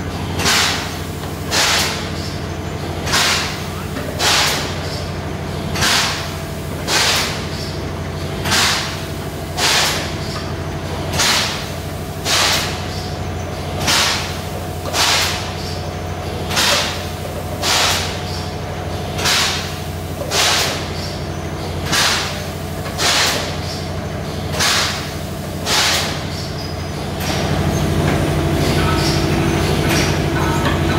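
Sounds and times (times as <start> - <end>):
machine hum: 0.0 - 30.9
loud steady drone: 27.0 - 30.9.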